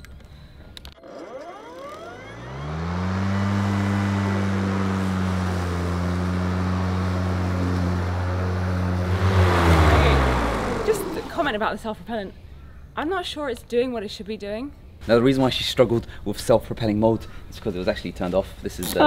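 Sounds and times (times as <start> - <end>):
electric lawn mower motor whine: 0.8 - 11.6.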